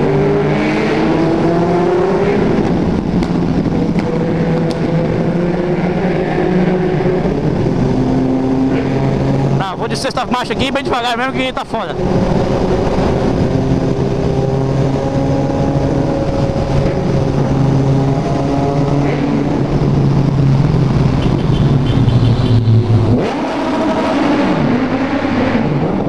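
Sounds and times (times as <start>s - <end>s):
motorcycle engine in tunnel: 0.0s - 11.4s, 12.0s - 26.0s
wind rush: 0.0s - 26.0s.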